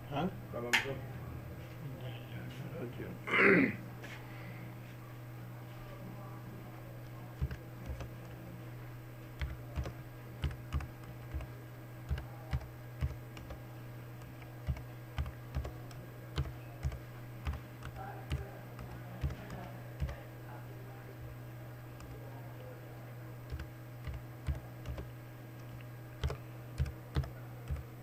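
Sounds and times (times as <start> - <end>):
steady low hum: 0.0 - 28.0
keyboard typing: 7.4 - 8.4, 9.4 - 13.6, 14.2 - 20.2, 23.4 - 28.0.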